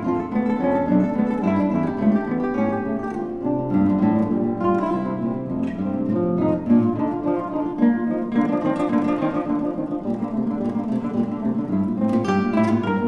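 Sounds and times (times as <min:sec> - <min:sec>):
plucked acoustic guitar music: 0:00.0 - 0:13.0.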